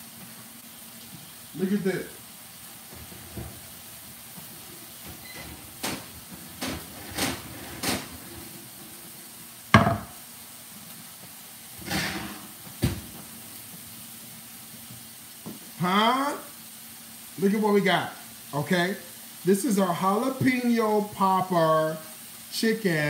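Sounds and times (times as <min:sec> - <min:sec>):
skillet thud on wooden board: 0:09.7 - 0:10.2
cookware knocking and clanking: 0:09.8 - 0:10.2.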